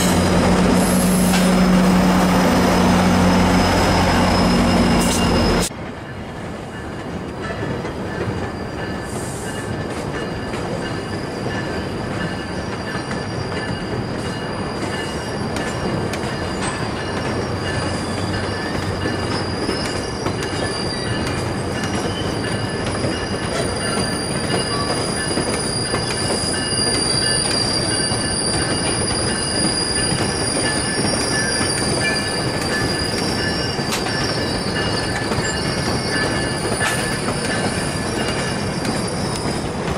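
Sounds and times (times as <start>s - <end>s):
rumble of wheels on track: 0.0s - 39.9s
steel wheels squealing on rails: 0.0s - 39.9s.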